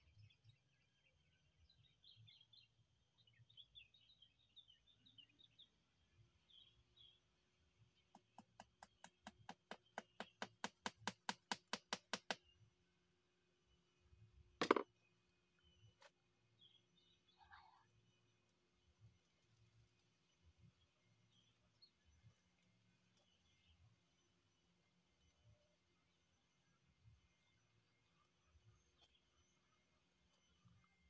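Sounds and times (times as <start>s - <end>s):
rapid sharp clicks: 8.1s - 12.4s
birds chirping: 14.6s - 25.3s.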